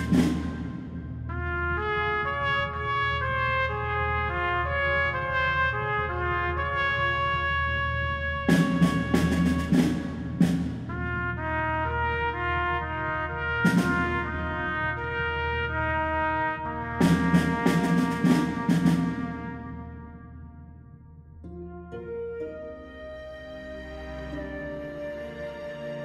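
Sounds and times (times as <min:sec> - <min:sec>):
percussion hits: 0:00.0 - 0:01.5, 0:08.5 - 0:11.2
slow brass melody: 0:00.0 - 0:26.0.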